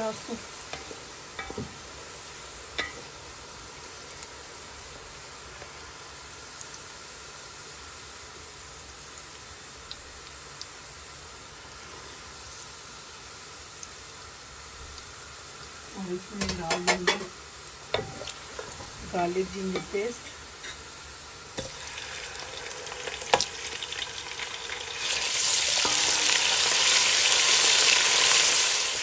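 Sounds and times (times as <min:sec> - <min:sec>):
onions sizzling in oil: 0:00.0 - 0:29.0.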